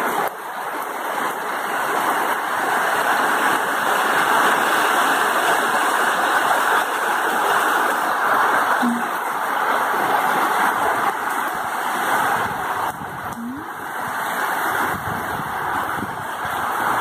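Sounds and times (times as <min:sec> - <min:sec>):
heavy rain pouring: 0:00.0 - 0:17.0
water streaming off eaves: 0:00.0 - 0:17.0
brief rising tone: 0:08.8 - 0:09.2, 0:13.4 - 0:13.8.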